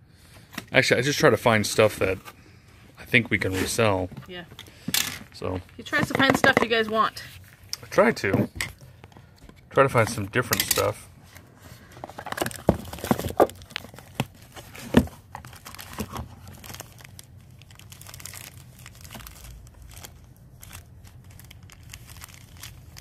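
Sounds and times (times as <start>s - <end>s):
cardboard box rustling and crinkling: 11.7s - 23.0s.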